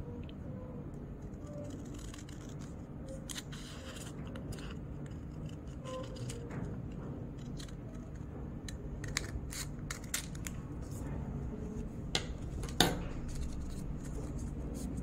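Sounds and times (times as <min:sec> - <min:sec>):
low background hum: 0:00.0 - 0:15.0
scissors snipping paper: 0:01.4 - 0:06.5, 0:07.4 - 0:10.6.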